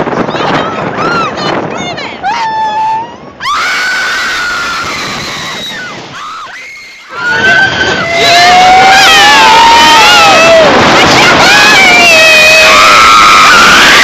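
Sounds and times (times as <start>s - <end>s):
wind noise rushing: 0.0s - 14.0s.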